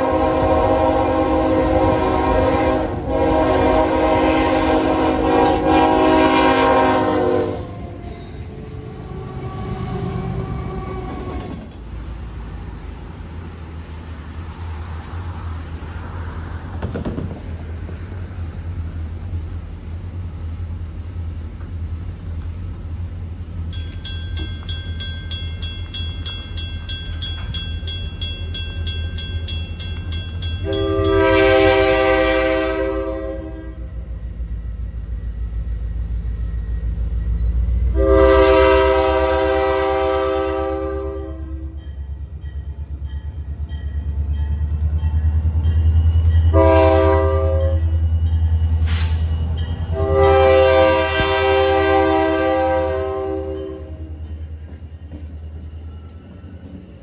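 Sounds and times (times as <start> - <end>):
train air horn blasts: 0.0 - 11.7, 30.6 - 34.0, 37.9 - 41.8, 46.5 - 47.9, 49.9 - 54.2
diesel locomotive rumble: 0.0 - 57.0.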